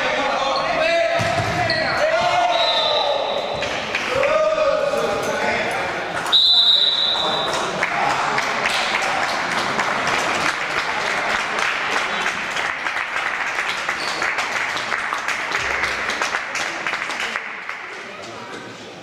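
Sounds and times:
crowd applauding: 0:07.2 - 0:18.3.

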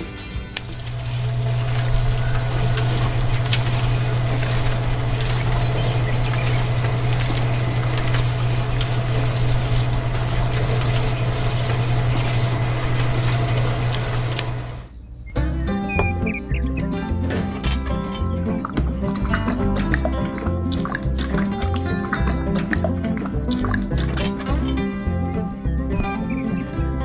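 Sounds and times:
small electric motor humming: 0:00.6 - 0:14.9.

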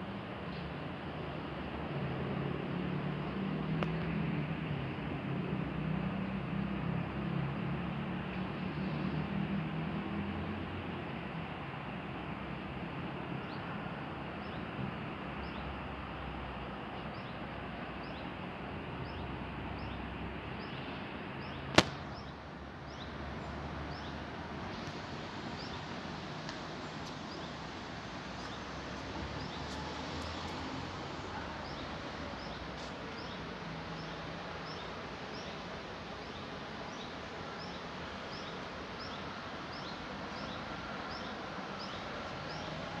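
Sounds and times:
distant road traffic hum: 0:00.0 - 0:43.0
sharp loud click: 0:21.7 - 0:22.2.

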